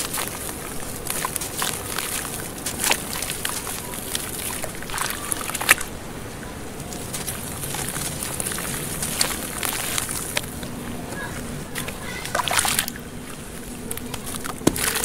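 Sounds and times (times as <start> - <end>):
grains splashing into water: 0.0 - 5.9, 6.9 - 10.6, 11.7 - 13.0
wet block crumbling: 13.9 - 15.0.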